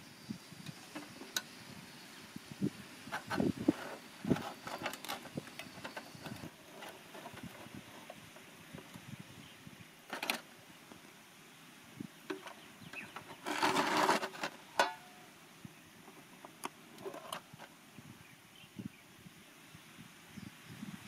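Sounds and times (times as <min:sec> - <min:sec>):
camp gear clicks and knocks: 0:00.7 - 0:01.5, 0:03.1 - 0:09.0, 0:10.1 - 0:10.5, 0:12.3 - 0:15.2, 0:16.1 - 0:17.7
brief rustle: 0:03.1 - 0:09.0, 0:12.3 - 0:15.0.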